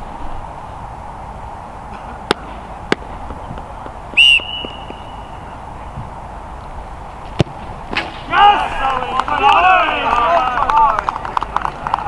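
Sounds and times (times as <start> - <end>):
open-air background noise: 0.0 - 12.0
referee's whistle blast: 4.2 - 5.3.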